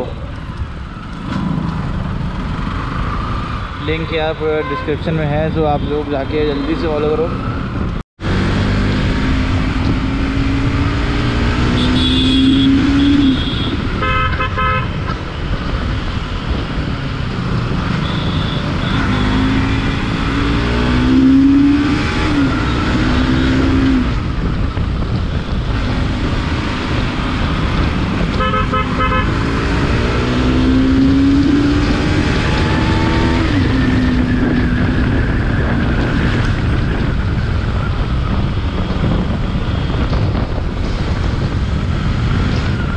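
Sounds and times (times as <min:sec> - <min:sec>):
road noise: 0:00.0 - 0:42.9
motorcycle engine accelerating: 0:08.2 - 0:13.7, 0:15.8 - 0:42.9
vehicle horn short beeps: 0:11.8 - 0:14.9.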